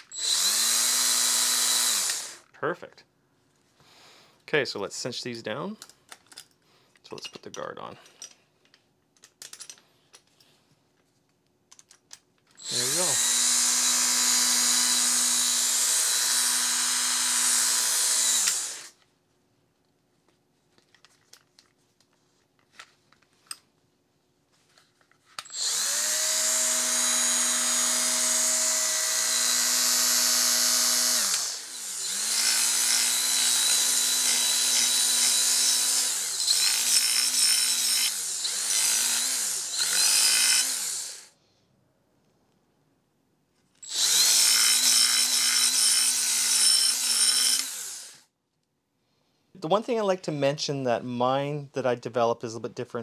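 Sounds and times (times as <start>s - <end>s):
belt file motor running: 0.2s - 2.4s, 12.6s - 18.9s, 25.5s - 41.3s, 43.8s - 48.2s.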